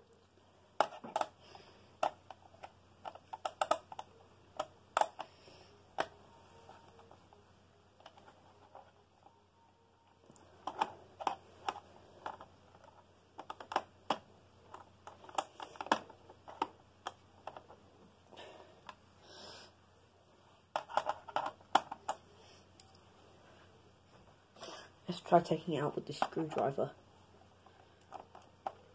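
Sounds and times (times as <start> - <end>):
fingers clicking on plastic: 2.0 - 5.4, 10.3 - 17.8.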